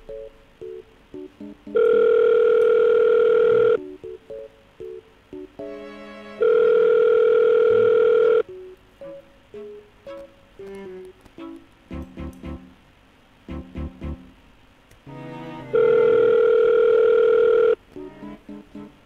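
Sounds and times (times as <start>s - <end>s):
telephone ringback tone: 1.7s - 3.8s, 6.4s - 8.5s, 15.7s - 17.8s.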